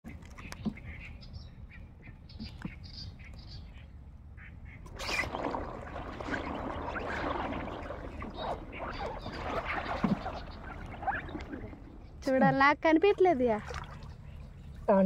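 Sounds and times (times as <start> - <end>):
water sloshing and splashing: 4.8 - 15.0.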